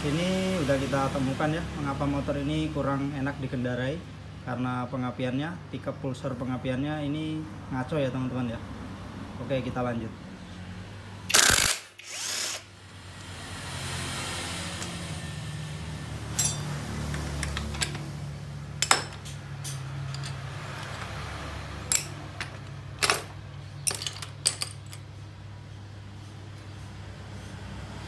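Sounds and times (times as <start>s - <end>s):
cordless drill spinning: 11.3s - 12.7s
metallic clinks: 16.3s - 18.0s, 18.8s - 21.1s, 21.9s - 25.2s.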